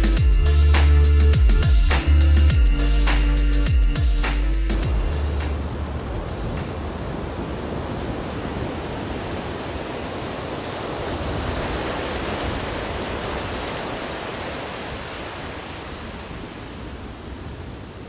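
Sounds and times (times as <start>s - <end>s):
surf washing on beach: 5.4s - 18.0s.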